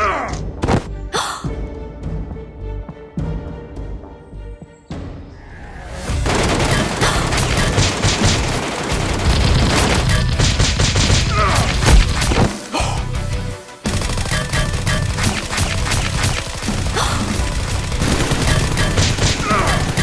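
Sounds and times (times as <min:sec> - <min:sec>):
background music: 0:00.0 - 0:20.0
gunfire bursts: 0:06.2 - 0:12.6, 0:13.8 - 0:20.0.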